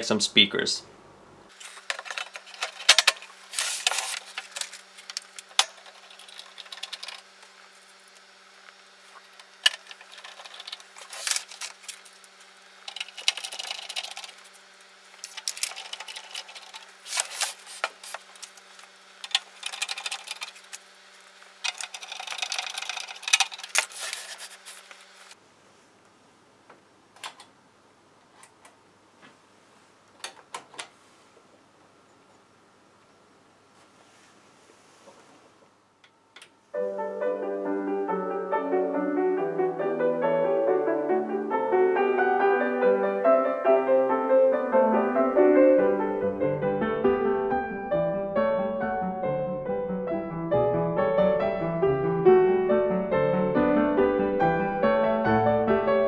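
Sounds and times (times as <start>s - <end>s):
faint steady hum: 0.0s - 39.3s
metal cover clicks and rattles: 1.9s - 3.3s, 21.6s - 23.9s.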